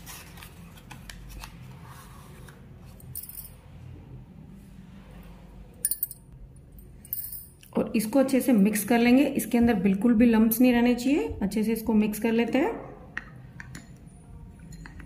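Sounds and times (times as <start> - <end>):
low steady hum: 0.0 - 15.0
metal spoon clinking glass bowl: 14.6 - 15.0.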